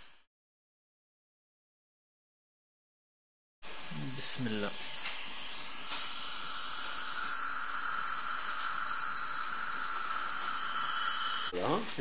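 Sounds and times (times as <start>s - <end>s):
dental suction hissing: 0.0s - 0.3s, 3.6s - 12.0s.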